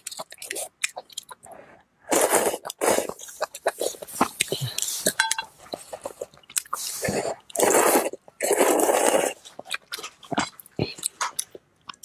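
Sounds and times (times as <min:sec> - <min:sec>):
chewing: 0:00.0 - 0:12.0
noodles being slurped: 0:02.1 - 0:10.1.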